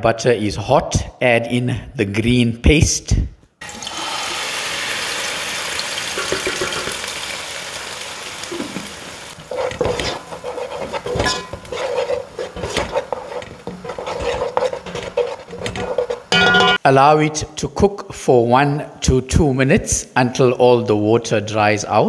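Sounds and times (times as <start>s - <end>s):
paste sizzling in hot fat: 3.6s - 16.3s
utensil scraping a pan: 8.5s - 16.8s.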